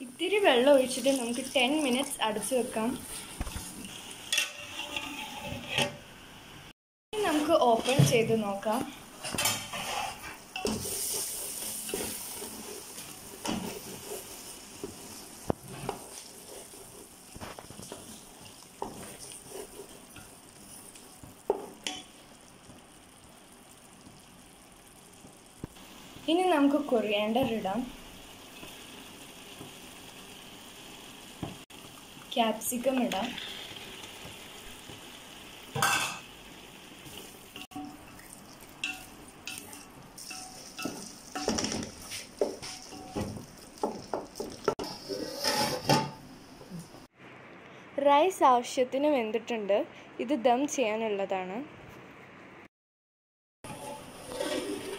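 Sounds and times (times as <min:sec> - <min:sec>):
food sizzling: 0:00.0 - 0:47.2, 0:53.6 - 0:54.9
spatula scraping a pot: 0:03.9 - 0:06.0, 0:09.2 - 0:21.0, 0:44.7 - 0:46.1, 0:53.7 - 0:54.9.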